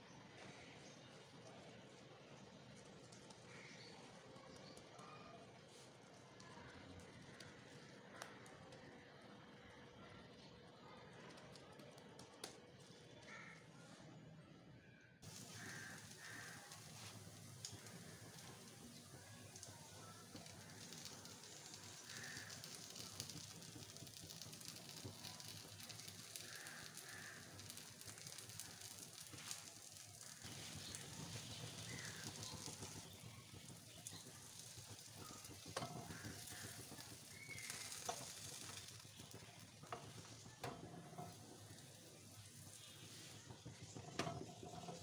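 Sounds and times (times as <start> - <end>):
bread frying on grill pan: 15.2 - 45.0.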